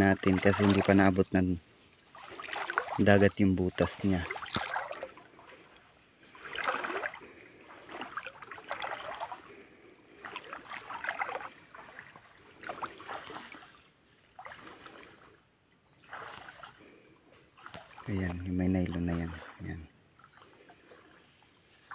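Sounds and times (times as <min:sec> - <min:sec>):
water sloshing with wading steps: 0:00.0 - 0:21.9.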